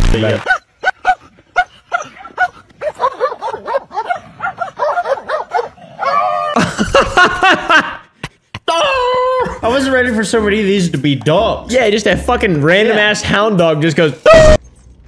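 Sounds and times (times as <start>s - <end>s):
dog yipping and barking: 0.4s - 6.4s
men laughing loudly: 0.5s - 5.7s, 6.5s - 10.7s.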